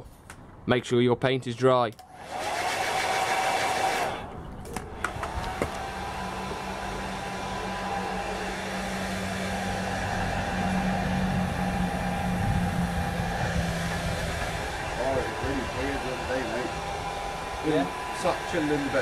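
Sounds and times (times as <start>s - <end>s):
hair dryer blowing: 2.1s - 19.0s.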